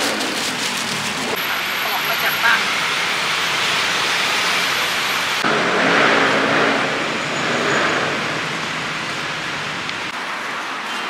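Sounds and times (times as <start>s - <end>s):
hands swishing leaves in water: 0.0s - 1.4s.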